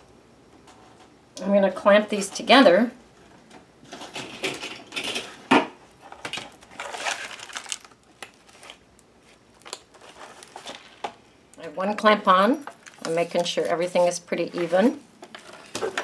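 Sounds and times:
paper pages rustling: 0:06.6 - 0:11.1.

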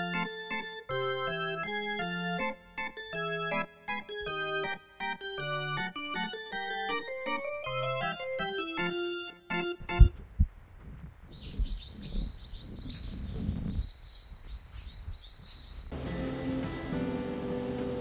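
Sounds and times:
keyboard music: 0:00.0 - 0:10.1, 0:15.9 - 0:18.0
sharp low thumps: 0:09.9 - 0:13.8
small birds chirping: 0:11.3 - 0:16.0.

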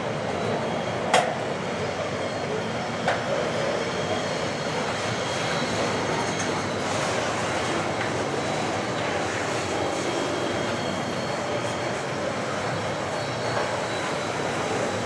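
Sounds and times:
steel wheels rolling on rail: 0:00.0 - 0:15.0
faint high squeal: 0:02.0 - 0:15.0.

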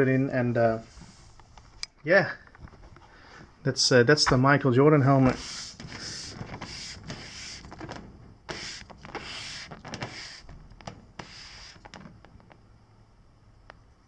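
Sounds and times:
helmet rubbing on tabletop: 0:05.1 - 0:12.6.

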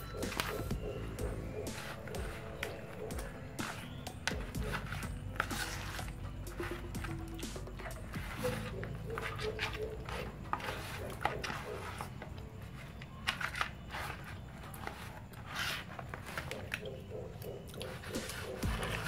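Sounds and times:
hands rubbing wet meat: 0:00.2 - 0:16.8.

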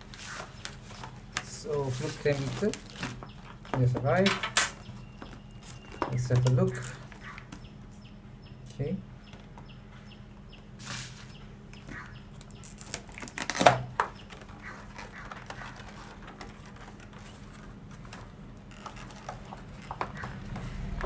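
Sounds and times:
plastic blister pack crackling: 0:00.0 - 0:07.6, 0:11.9 - 0:20.5
plastic pack snapping open: 0:12.4 - 0:17.1.

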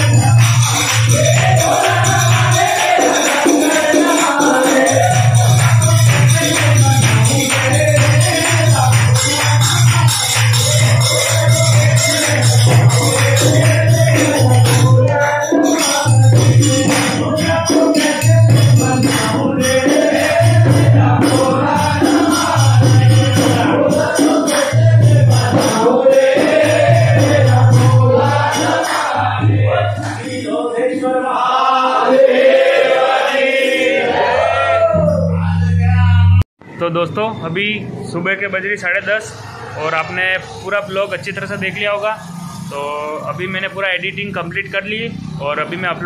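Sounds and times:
men singing devotional song: 0:00.0 - 0:36.0
rhythmic percussion: 0:00.0 - 0:36.4, 0:37.0 - 0:46.0
lead voice on microphone: 0:35.4 - 0:46.0.

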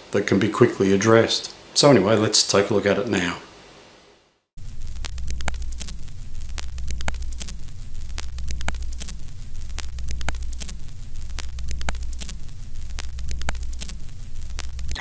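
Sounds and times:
low hum: 0:04.6 - 0:15.0
scratchy film crackle and pops: 0:04.6 - 0:15.0.

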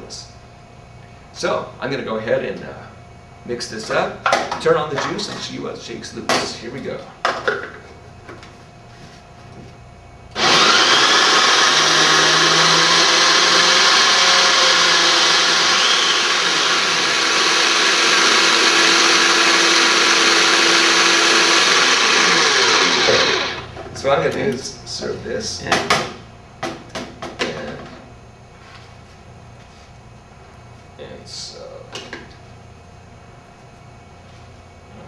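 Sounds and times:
food processor motor running: 0:10.3 - 0:23.7.

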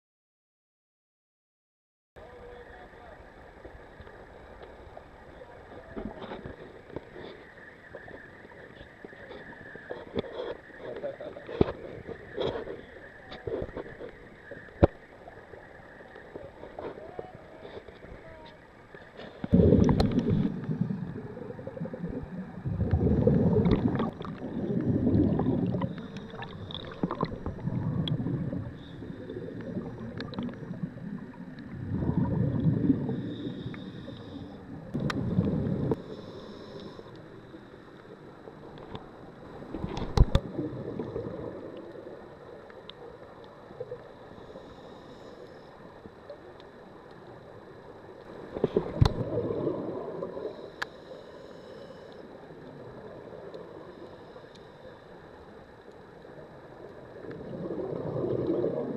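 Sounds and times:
scuba regulator exhaust bubbles: 0:19.4 - 0:37.0, 0:39.7 - 0:44.8, 0:48.2 - 0:51.0, 0:56.3 - 0:58.9.

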